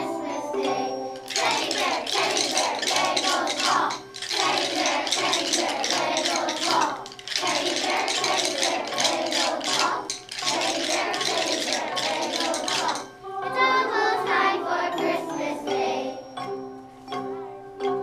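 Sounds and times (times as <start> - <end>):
hand percussion jingling and shaking: 0.0 - 13.2.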